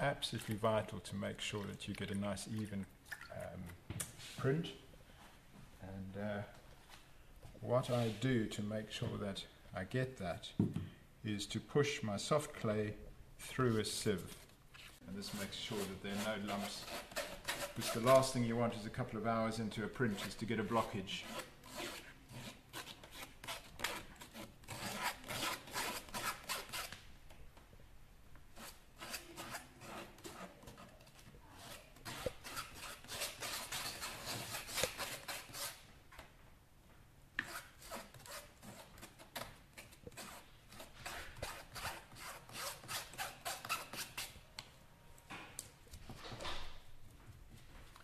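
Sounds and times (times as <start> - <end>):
spoon scraping clay through sieve: 14.2 - 18.5, 20.0 - 26.9, 28.6 - 35.8.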